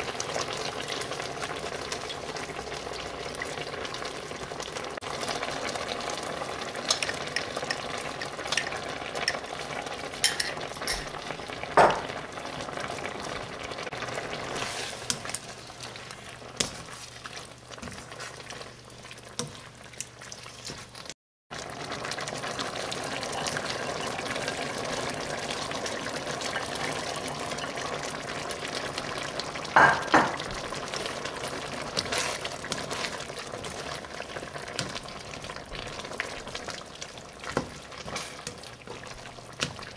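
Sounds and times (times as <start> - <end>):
curry sizzling and bubbling in wok: 0.0 - 39.9
spatula scraping a pan: 14.6 - 18.6, 31.8 - 33.8, 37.6 - 38.7.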